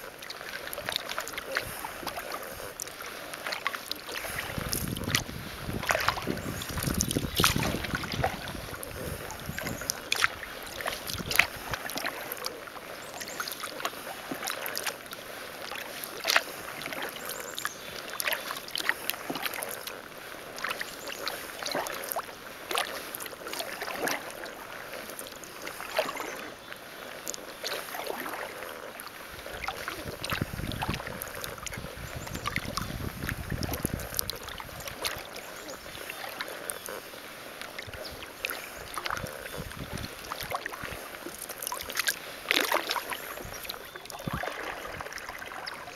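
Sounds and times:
water dripping and splashing: 0:00.0 - 0:15.0, 0:15.6 - 0:26.5, 0:27.2 - 0:37.0, 0:37.6 - 0:45.9
kayak paddle pulling through water: 0:00.0 - 0:45.9
wind rumble on microphone: 0:04.3 - 0:10.1, 0:11.0 - 0:11.8, 0:29.4 - 0:35.2, 0:37.8 - 0:41.0, 0:44.2 - 0:45.2.

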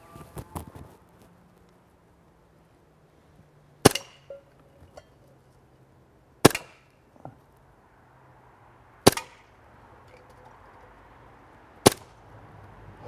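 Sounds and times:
bb pistol shot cracks: 0:06.4 - 0:06.8, 0:09.0 - 0:09.4, 0:11.8 - 0:12.1.

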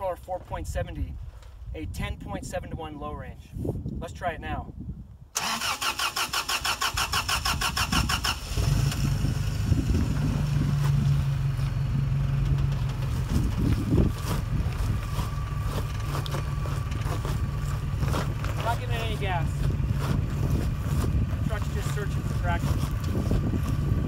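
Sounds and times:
truck starter motor cranking: 0:05.4 - 0:10.2
truck engine idling: 0:08.4 - 0:24.0.

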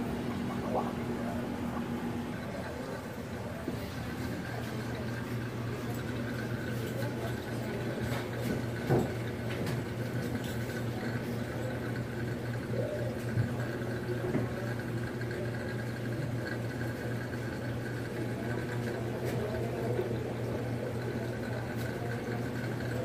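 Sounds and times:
moving water: 0:00.0 - 0:11.2
low pump hum: 0:00.0 - 0:23.0.

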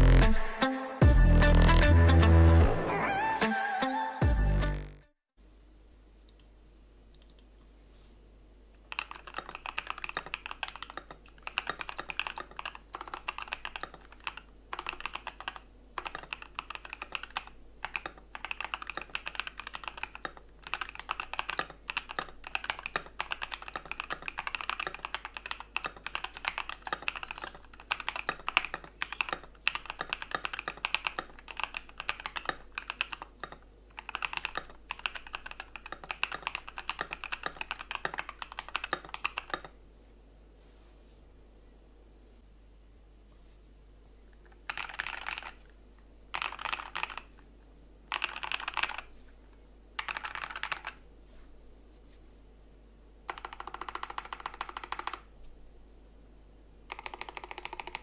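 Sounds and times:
mechanical keyboard typing: 0:08.9 - 0:39.8, 0:44.5 - 0:45.6, 0:46.3 - 0:47.3, 0:48.1 - 0:49.1, 0:50.0 - 0:51.0, 0:53.3 - 0:55.3, 0:56.9 - 0:58.0.

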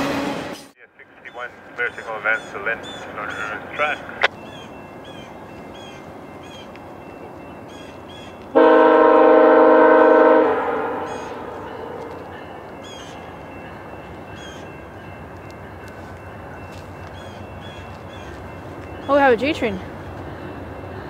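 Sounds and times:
train air horn blast: 0:08.5 - 0:12.0.

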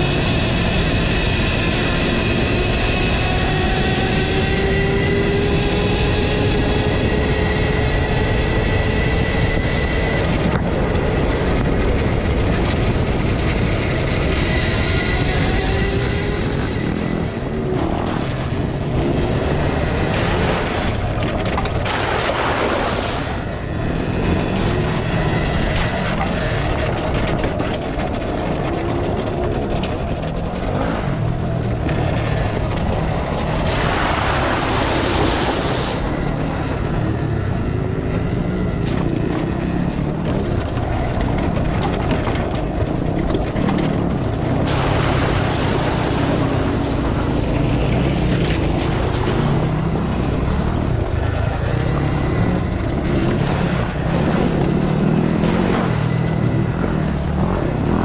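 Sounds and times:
wind rushing: 0:04.2 - 0:41.4.

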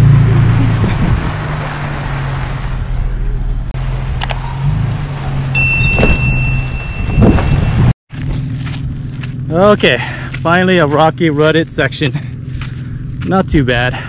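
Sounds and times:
bell-like ding: 0:05.6 - 0:07.9.

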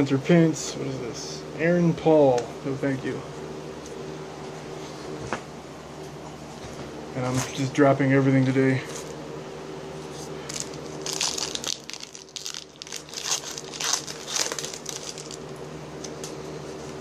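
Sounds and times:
faint steady hum: 0:00.0 - 0:17.0
wrapper crinkling and tearing: 0:10.5 - 0:15.5.

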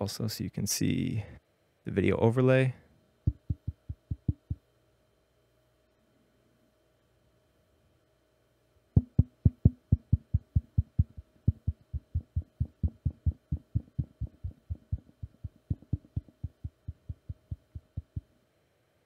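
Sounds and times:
fingertips tapping microphone grilles: 0:03.3 - 0:04.6, 0:09.0 - 0:18.3.

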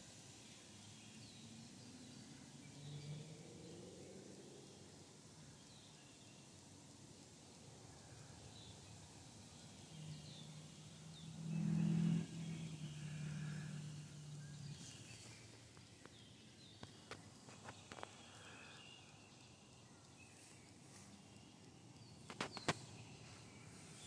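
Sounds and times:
faint bird chirps: 0:07.9 - 0:24.0.

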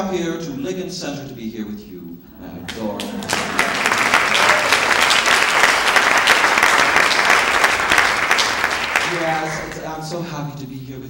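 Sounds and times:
audience applauding: 0:02.6 - 0:10.1.

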